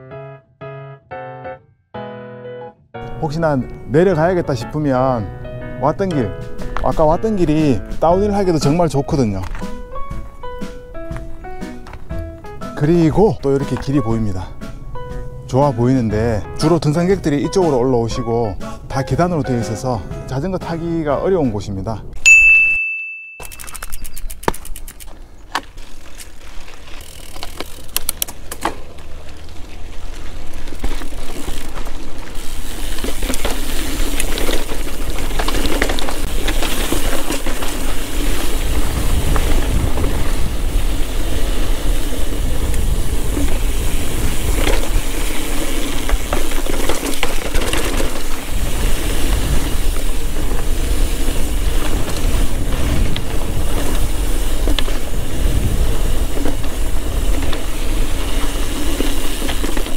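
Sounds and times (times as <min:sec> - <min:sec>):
tyre and trail noise: 0:03.4 - 0:17.9, 0:23.4 - 0:59.9
sharp clicks: 0:23.4 - 0:25.7
bike knocks and rattles: 0:23.4 - 0:59.9.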